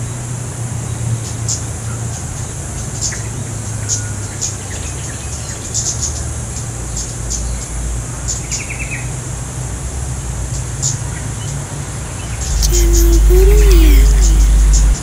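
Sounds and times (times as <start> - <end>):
steady low rumble: 14.0 - 15.0.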